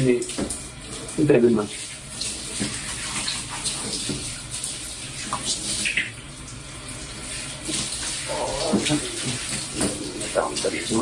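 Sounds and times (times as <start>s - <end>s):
shower water spraying and splashing: 0.0s - 11.0s
man exclaiming: 8.3s - 9.4s.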